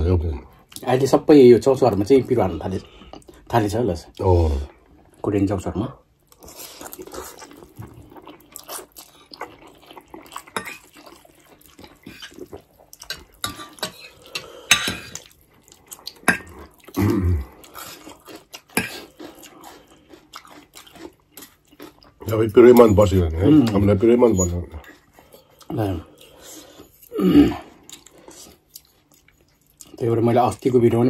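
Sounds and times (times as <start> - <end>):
slurping and chewing noodles: 6.2 - 30.0
cutlery clinking on ceramic plates: 13.1 - 15.2.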